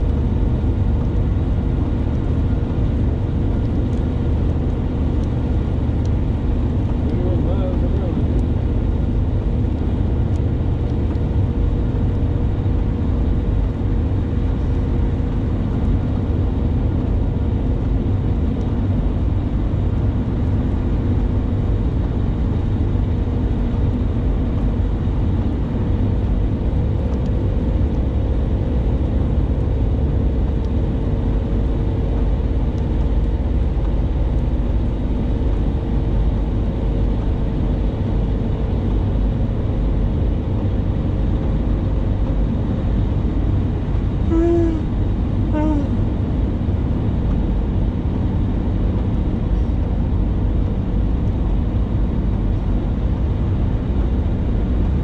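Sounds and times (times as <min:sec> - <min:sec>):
tyres and engine rumble: 0:00.0 - 0:55.0
faint steady hum: 0:19.4 - 0:47.8.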